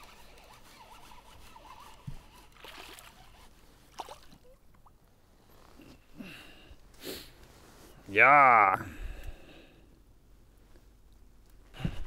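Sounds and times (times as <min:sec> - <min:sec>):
light water splashing: 0:02.5 - 0:05.1.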